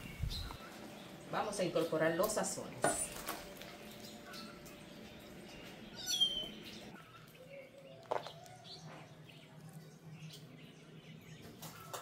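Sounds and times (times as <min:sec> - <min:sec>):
faint bird chirps: 0:05.6 - 0:12.0.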